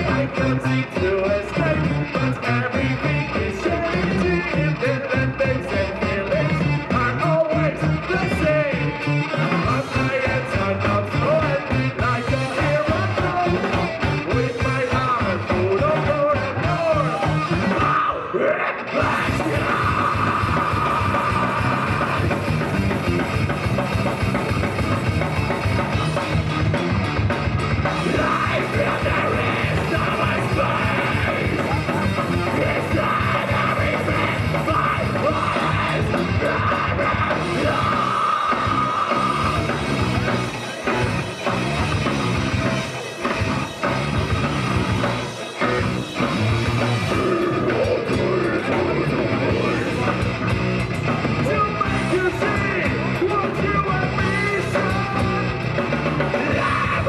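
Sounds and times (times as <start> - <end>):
shouted vocals: 0.0 - 23.0, 27.9 - 41.9, 51.3 - 57.0
distorted electric guitars: 0.0 - 57.0
pounding drum kit: 0.0 - 57.0.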